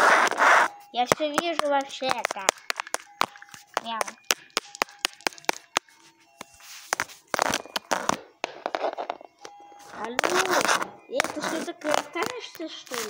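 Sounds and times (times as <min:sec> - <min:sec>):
rustling and scraping: 0:00.0 - 0:02.4, 0:05.6 - 0:09.2, 0:09.8 - 0:13.0
plastic toy figurines clicking: 0:01.1 - 0:05.8.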